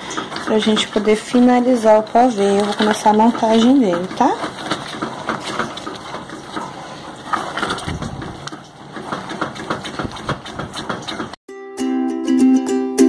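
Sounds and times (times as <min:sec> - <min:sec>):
spatula scraping a saucepan: 0:00.0 - 0:11.4
ukulele music: 0:11.5 - 0:13.0.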